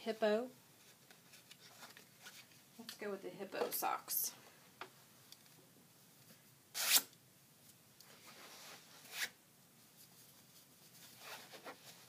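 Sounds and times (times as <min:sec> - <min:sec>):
fabric rustling and scraping: 0:08.1 - 0:12.0.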